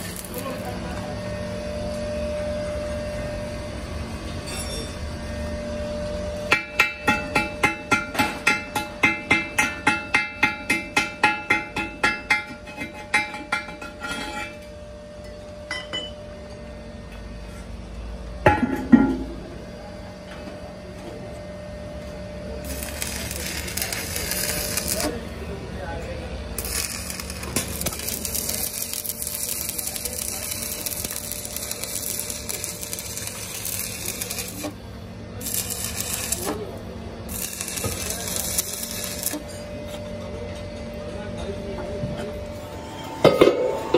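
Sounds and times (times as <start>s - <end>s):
welding arc crackling: 0.0s - 0.7s, 22.6s - 25.4s, 26.5s - 39.5s
steady low hum: 0.0s - 9.6s, 10.4s - 43.9s.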